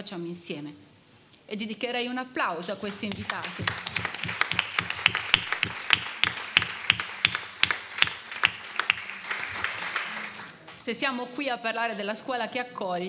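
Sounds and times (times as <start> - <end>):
audience applauding: 2.9 - 10.9
close sharp claps: 2.9 - 10.9.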